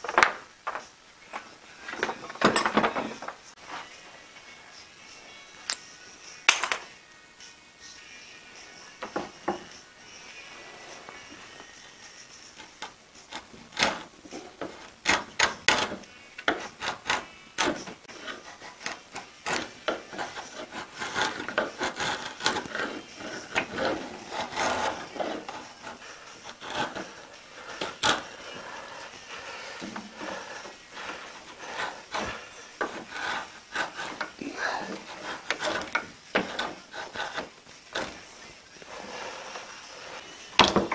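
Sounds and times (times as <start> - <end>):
drawknife scraping wood: 12.5 - 40.9.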